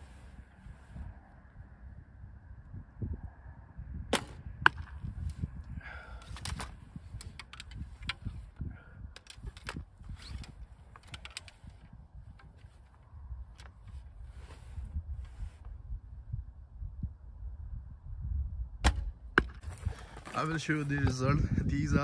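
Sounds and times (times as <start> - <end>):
wind rumbling on microphone: 0.0 - 22.0
loud sharp crack: 4.1 - 5.0
light clicks and rustles: 6.1 - 8.6, 9.2 - 15.7.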